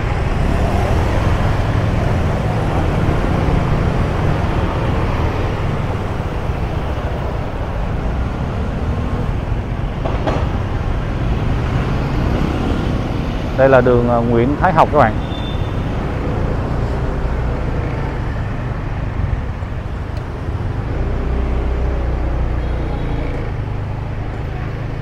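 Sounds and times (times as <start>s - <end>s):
city traffic rumble: 0.0s - 25.0s.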